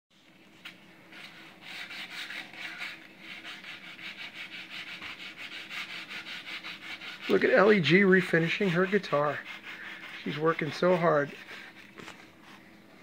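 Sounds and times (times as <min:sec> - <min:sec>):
sandpaper rubbing on guitar body: 0:01.1 - 0:11.8.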